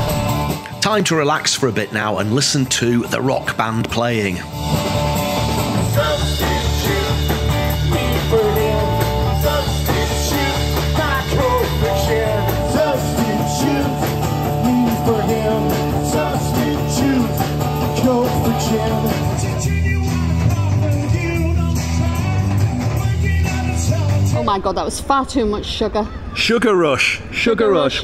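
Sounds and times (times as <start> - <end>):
electric guitar: 0.0 - 0.8, 3.4 - 24.6
bass guitar: 0.0 - 1.3, 2.2 - 24.6
drums: 0.0 - 27.5
man singing: 5.8 - 24.4.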